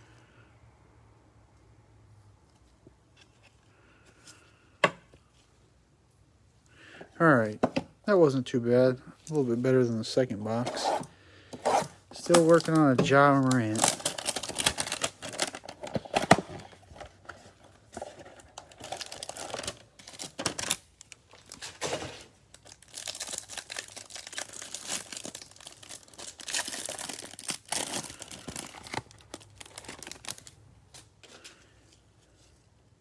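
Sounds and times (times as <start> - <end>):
cellophane tearing and crinkling: 11.8 - 17.2, 18.2 - 31.1.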